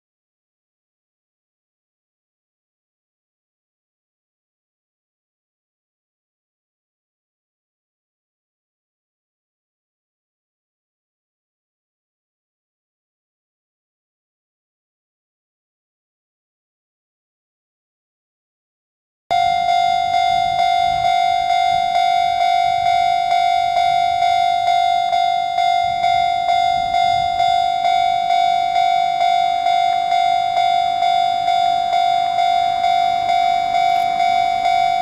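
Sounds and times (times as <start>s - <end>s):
level-crossing warning bell ringing: 19.3s - 35.0s.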